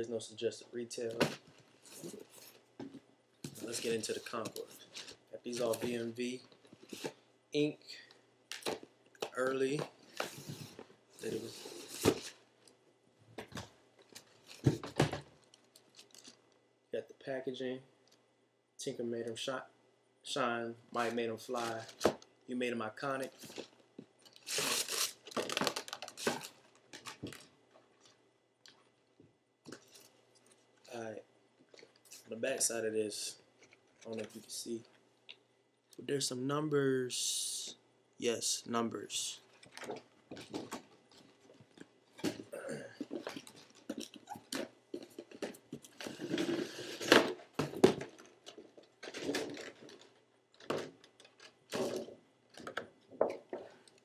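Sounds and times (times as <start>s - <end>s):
wrapping paper rustling: 23.3s - 28.2s.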